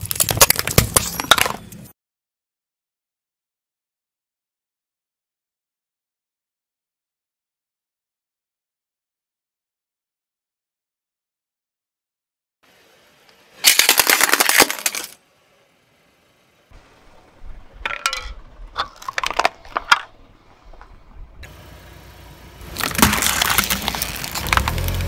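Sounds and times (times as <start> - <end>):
plastic bottles crunching flat: 0.0 - 1.6, 13.6 - 15.2, 18.8 - 20.2, 22.6 - 25.0
tyre crushing crunchy objects: 0.0 - 1.7, 13.6 - 15.2, 22.6 - 25.0
low rumble: 19.4 - 25.0.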